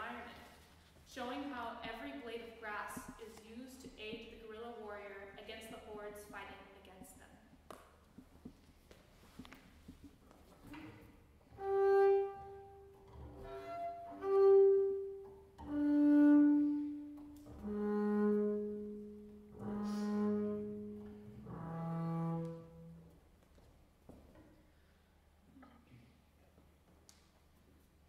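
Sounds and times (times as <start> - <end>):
bowed double bass notes: 9.4 - 23.4.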